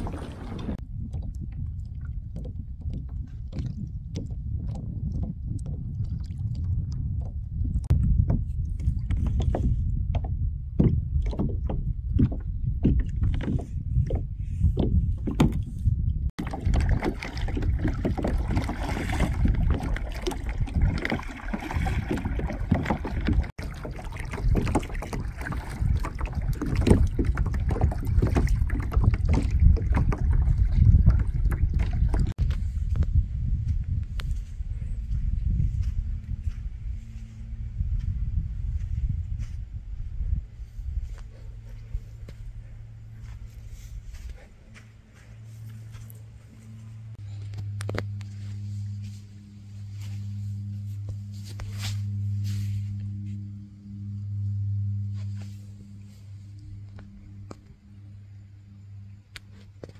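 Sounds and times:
paddle strokes splashing: 0.0s - 6.6s, 16.4s - 32.4s
water slapping a hull: 0.0s - 32.9s
wind rumble on microphone: 0.0s - 59.9s.

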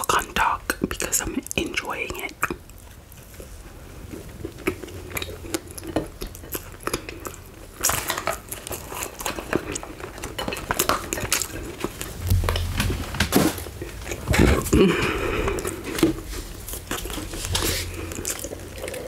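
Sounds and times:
chewing biscuit: 0.0s - 12.2s, 14.1s - 19.0s
dull thump: 12.2s - 13.7s.

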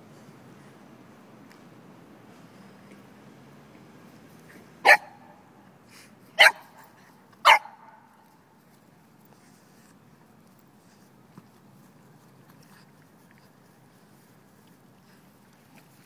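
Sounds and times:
dog barking: 4.8s - 5.2s, 6.4s - 6.8s, 7.4s - 8.1s.

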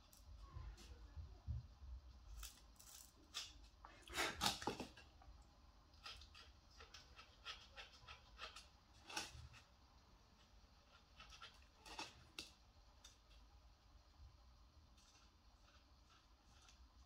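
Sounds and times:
pen tip scratching gourd skin: 6.0s - 9.7s, 10.8s - 12.2s.

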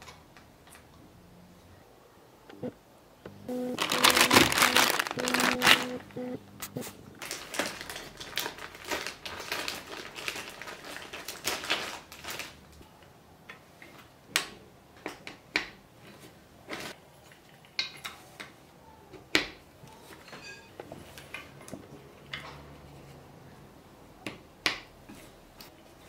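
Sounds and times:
plastic bag crinkling: 3.8s - 12.8s.

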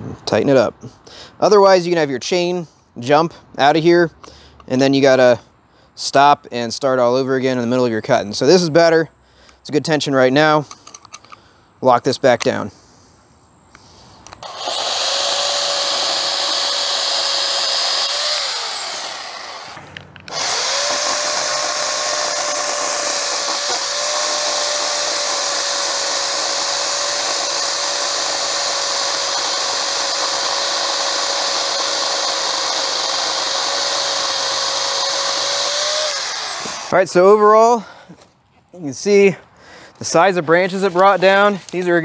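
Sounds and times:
electric chainsaw whining: 14.4s - 37.0s.

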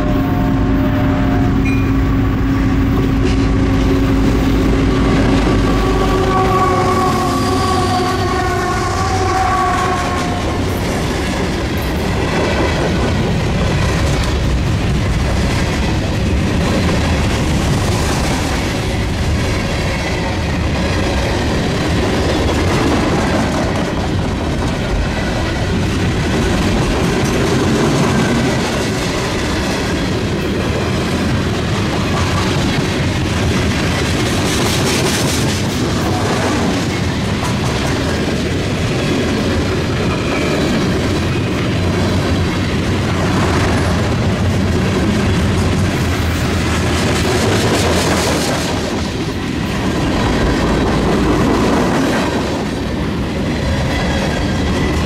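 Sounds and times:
train horn chord: 0.0s - 10.6s
diesel locomotive engine: 0.0s - 55.0s
train wheels rumbling on rails: 0.0s - 55.0s.

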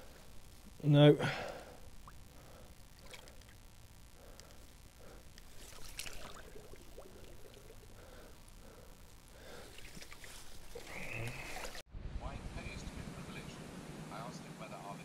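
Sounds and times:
net handled in water: 5.4s - 7.8s, 9.7s - 11.8s
water sloshing and splashing: 5.5s - 8.0s, 9.6s - 11.8s.

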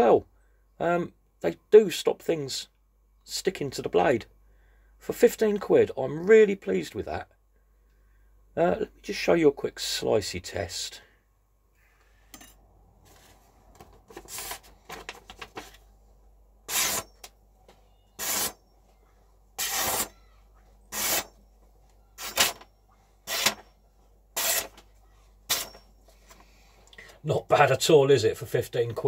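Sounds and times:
paper rustling: 13.0s - 15.9s
knife slicing paper: 16.7s - 17.1s, 19.6s - 20.1s, 24.4s - 24.8s.

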